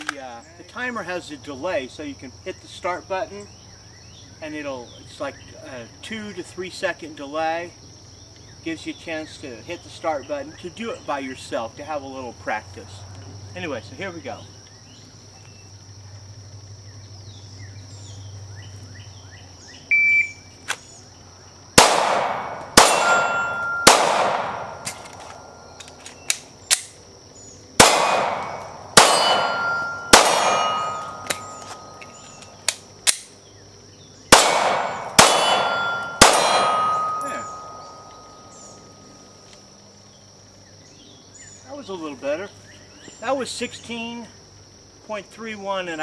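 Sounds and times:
shot timer beep: 19.9 - 20.4
pistol shots: 21.8 - 25.6, 27.8 - 32.0, 34.3 - 38.4
steel targets clanging: 22.3 - 25.8, 28.0 - 32.2, 34.4 - 39.1.

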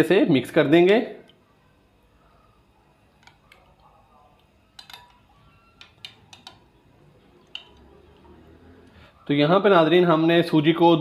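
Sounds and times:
spoon clinking against glass: 4.7 - 6.6.

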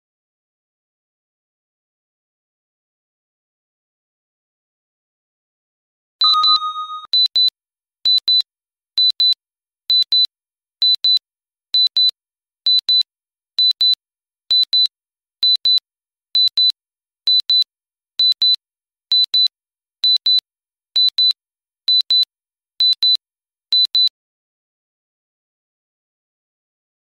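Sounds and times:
high-pitched double beeps: 6.2 - 7.1.

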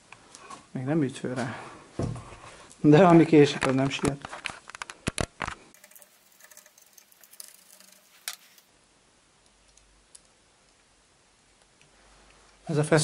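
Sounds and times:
small metal parts clinking: 5.7 - 8.7.

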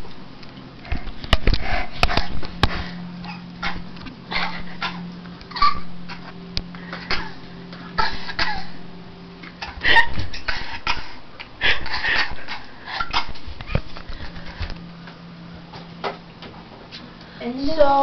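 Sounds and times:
girls laughing and giggling: 9.6 - 13.9.

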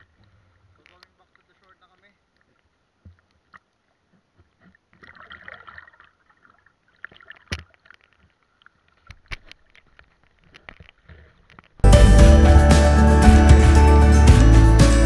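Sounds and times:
sea water sloshing and lapping: 2.4 - 11.7
water splashing: 4.9 - 10.9.

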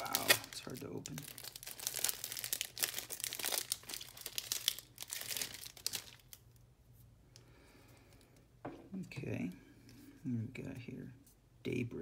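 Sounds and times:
foil wrapper crinkling and tearing: 0.0 - 6.5.

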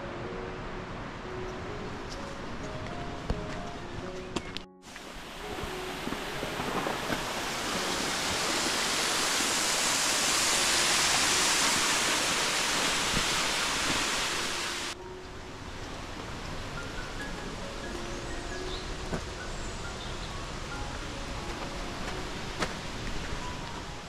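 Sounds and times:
waterfall rushing: 4.8 - 24.0.

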